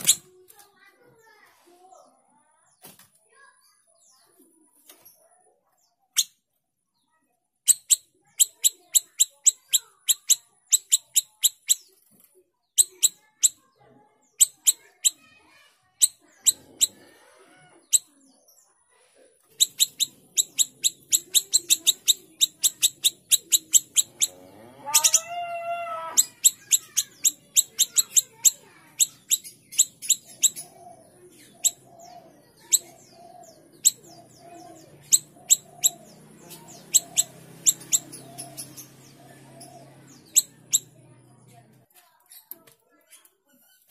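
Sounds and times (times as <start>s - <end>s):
faint low background sounds: 0.0s - 43.9s
songbird chirping: 0.0s - 43.9s
bird drawn-out call: 22.8s - 28.2s.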